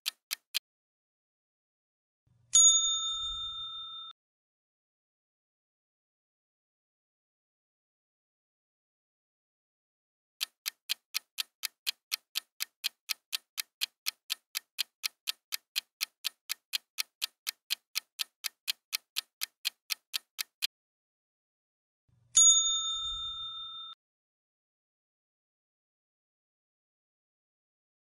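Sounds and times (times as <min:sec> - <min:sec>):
clock ticking fast: 0:00.0 - 0:00.6, 0:10.4 - 0:20.7
bright chime: 0:02.6 - 0:04.2, 0:22.4 - 0:24.0.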